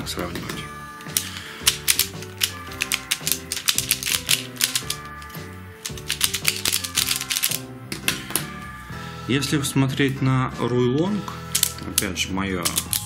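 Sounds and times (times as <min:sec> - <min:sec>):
background music: 0:00.0 - 0:13.0
plastic puzzle clicking: 0:01.0 - 0:08.4, 0:11.6 - 0:13.0.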